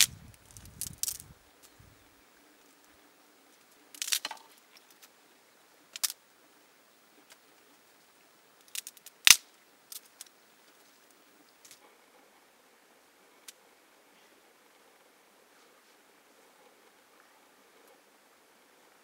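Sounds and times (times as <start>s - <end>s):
dry twigs crackling and snapping: 0.0s - 1.7s, 3.5s - 5.1s, 5.9s - 6.2s, 8.6s - 10.8s.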